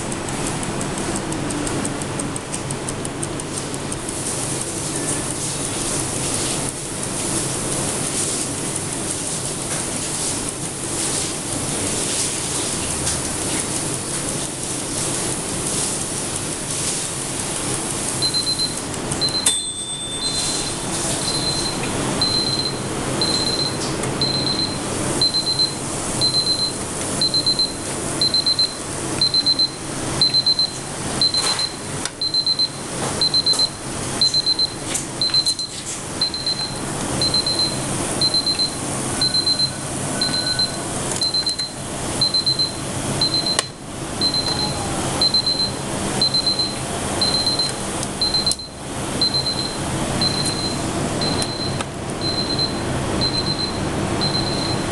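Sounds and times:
kitchen timer alarm beeping: 18.1 - 54.9.

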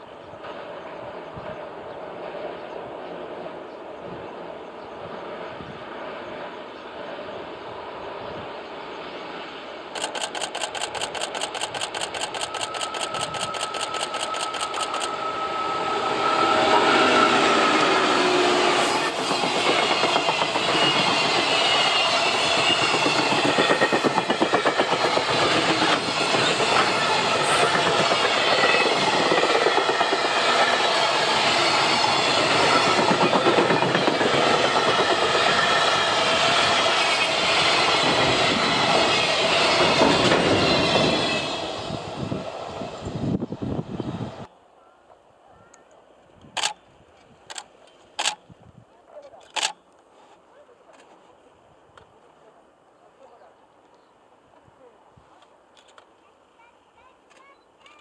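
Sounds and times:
train wheels clickety-clack: 9.9 - 15.3, 18.8 - 41.4
fast even clicking: 10.0 - 15.2.

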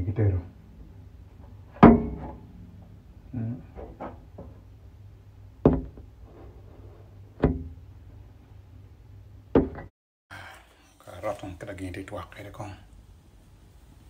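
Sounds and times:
sharp knocks with low thuds: 5.6 - 6.1, 7.4 - 7.8, 9.5 - 9.9.

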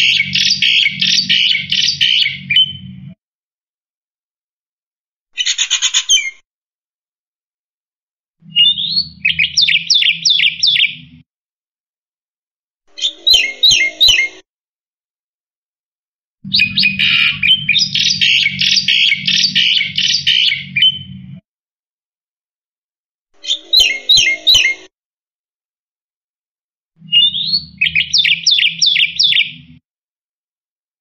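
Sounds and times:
low hum: 16.5 - 21.4.

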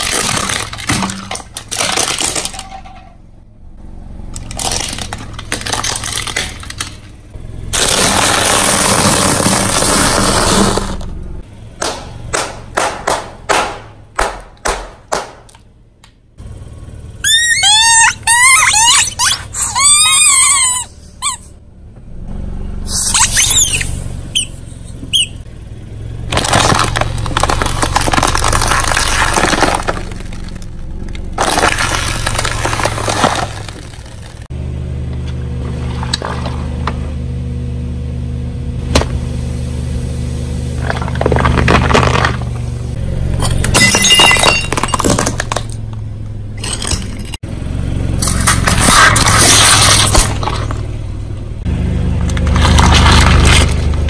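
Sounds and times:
car engine humming: 0.0 - 54.0
rubber squeeze toys squealing: 17.2 - 21.6, 22.9 - 25.4.

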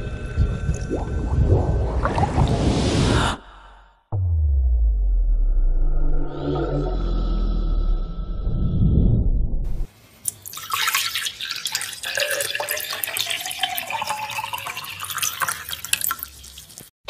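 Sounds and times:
low rumble: 0.0 - 9.9
wine poured into a glass: 10.4 - 16.4.

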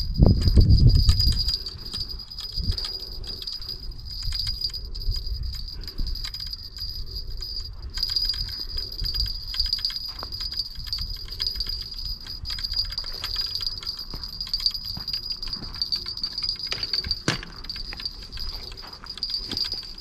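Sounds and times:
fishing reel ticking: 0.0 - 20.0
wind rumbling on microphone: 0.0 - 20.0.

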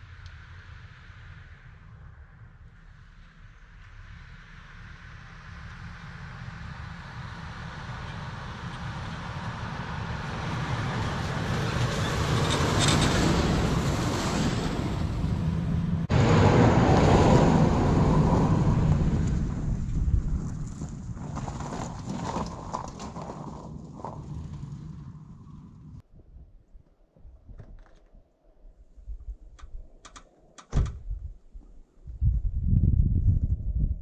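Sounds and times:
tyres driving through snow: 3.4 - 26.0
pickup truck engine: 3.8 - 26.0.

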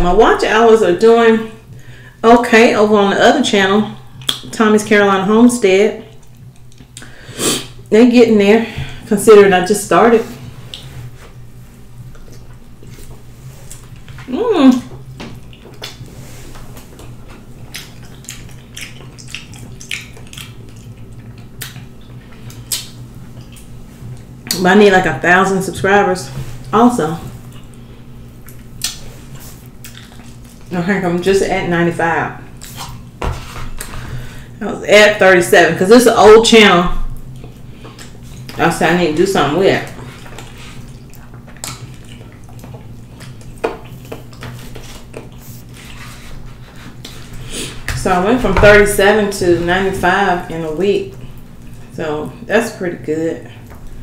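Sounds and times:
low steady hum: 0.0 - 54.0
wet chewing and lip smacks: 4.2 - 4.5, 6.1 - 7.1, 12.0 - 14.3, 14.9 - 24.6, 27.4 - 30.7, 37.1 - 38.6, 39.9 - 45.9, 51.1 - 51.9.

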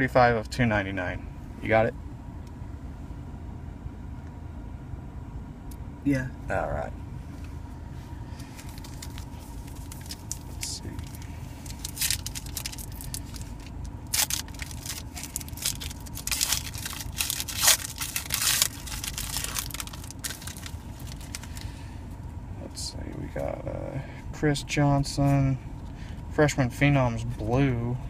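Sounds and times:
steady low hum: 0.0 - 28.0
foil wrapper tearing and crinkling: 8.6 - 21.7.

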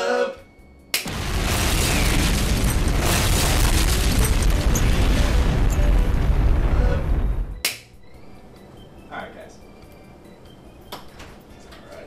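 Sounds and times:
explosion with low rumble: 1.1 - 7.6.

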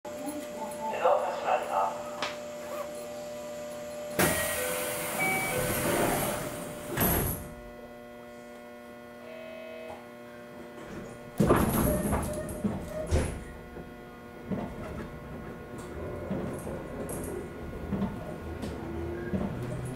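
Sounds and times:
air hiss of train doors: 4.1 - 7.4
train doors thudding shut: 4.1 - 7.5, 11.4 - 19.9.

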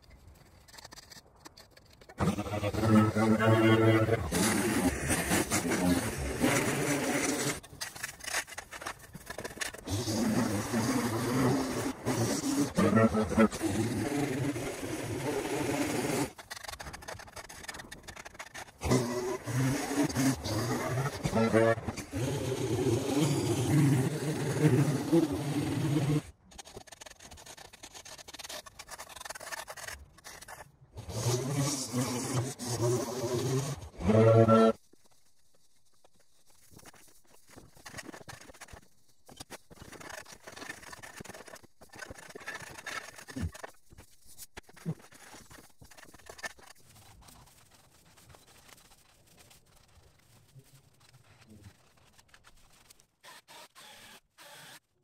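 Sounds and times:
faint scraping and crackling: 0.0 - 53.2
small gas engine running: 18.8 - 26.3
dry grass crackling and rustling: 34.8 - 53.1.

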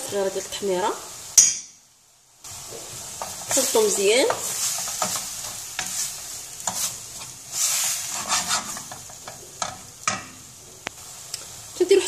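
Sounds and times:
vegetables sizzling in oil: 0.0 - 12.0
wooden spoon scraping a pan: 2.5 - 9.9.

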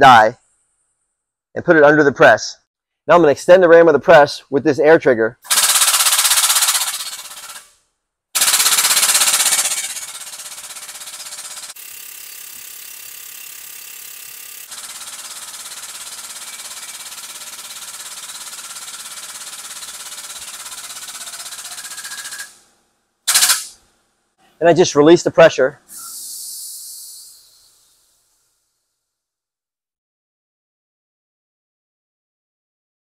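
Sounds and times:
hydraulic pump chattering: 5.5 - 7.6, 8.4 - 22.6, 23.3 - 23.7.

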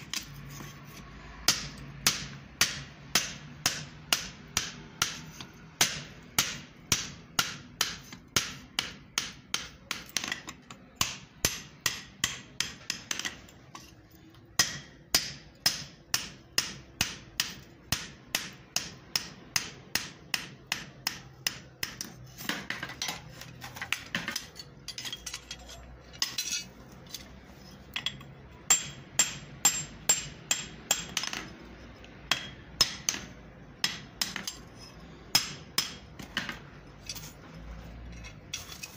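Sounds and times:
hammer striking steel on anvil: 1.4 - 13.5, 14.5 - 22.8, 27.9 - 31.6, 32.3 - 37.3.

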